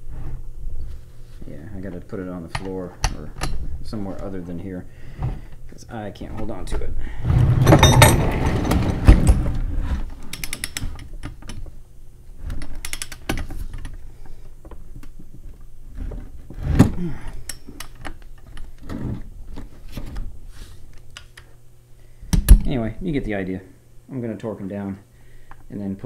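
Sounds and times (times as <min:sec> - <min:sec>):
ratchet wrench clicking: 0:12.8 - 0:13.2.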